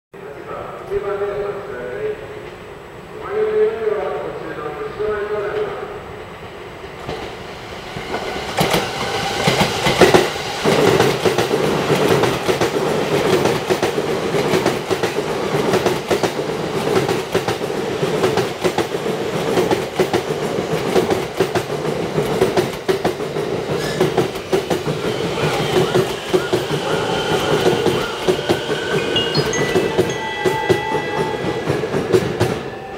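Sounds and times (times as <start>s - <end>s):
electric train passing: 0.2s - 32.9s
train wheels clacking over rail joints: 8.0s - 28.8s.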